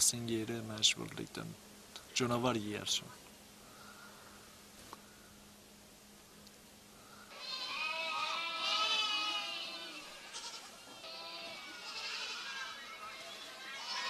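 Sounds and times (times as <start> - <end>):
flock of livestock bleating: 7.3 - 14.0.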